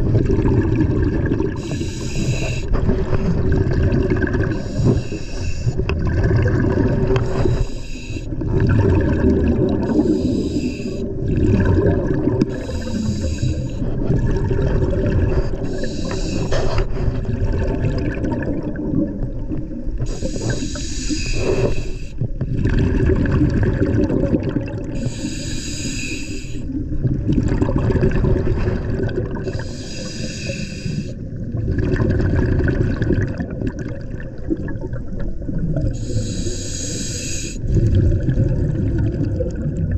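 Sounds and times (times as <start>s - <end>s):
bubbling exhale underwater: 0.0s - 25.5s, 26.5s - 39.9s
regulator hissing inhale: 1.6s - 2.8s, 4.5s - 5.8s, 7.2s - 8.4s, 9.8s - 11.1s, 12.5s - 13.9s, 15.6s - 17.1s, 20.1s - 22.3s, 25.0s - 26.8s, 29.4s - 31.2s, 35.9s - 37.7s.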